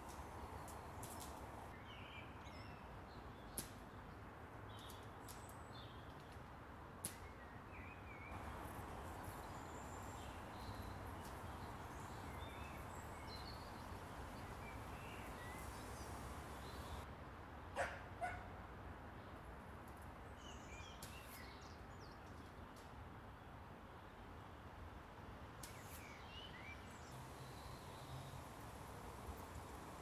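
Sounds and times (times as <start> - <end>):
birds chirping: 0.0 - 1.7, 8.3 - 17.0, 26.2 - 30.0
steady outdoor hush: 0.0 - 30.0.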